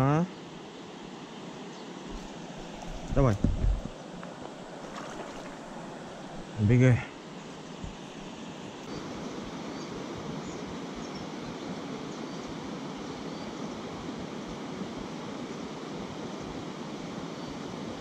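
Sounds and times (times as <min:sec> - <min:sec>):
river rushing over stones: 0:02.1 - 0:06.7.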